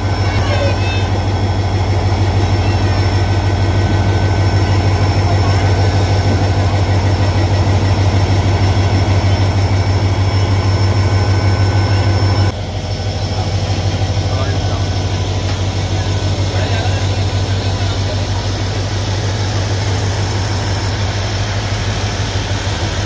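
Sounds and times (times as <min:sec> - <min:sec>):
diesel locomotive engine rumbling: 0:00.0 - 0:23.0.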